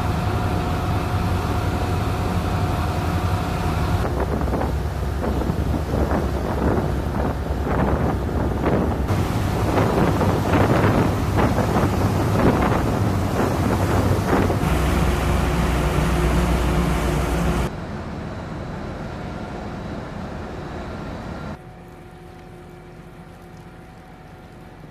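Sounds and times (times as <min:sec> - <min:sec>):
boat engine drone: 0:00.0 - 0:24.9
wind buffeting microphone: 0:03.9 - 0:17.7.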